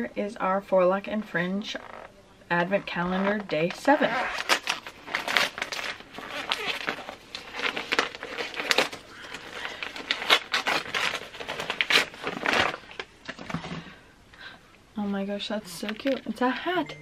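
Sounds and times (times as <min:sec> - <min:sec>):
wrapping paper crinkling and tearing: 0:03.2 - 0:13.4.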